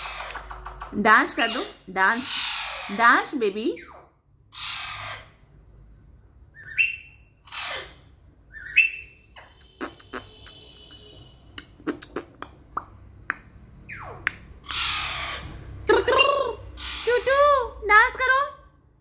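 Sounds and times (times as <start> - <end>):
parakeet chirps: 0.0 - 5.4, 6.5 - 11.0, 13.8 - 17.7.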